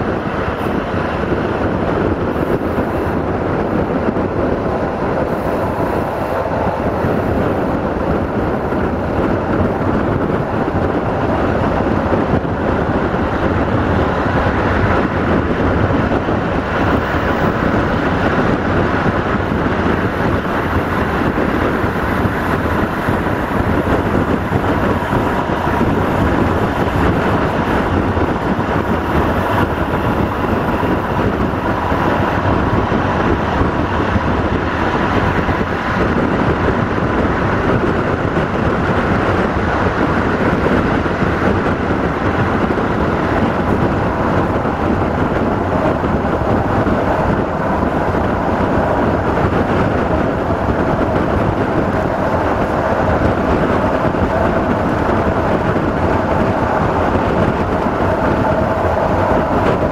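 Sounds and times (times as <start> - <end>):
train rolling at speed: 0.0 - 59.9
wind buffeting microphone: 0.0 - 59.9.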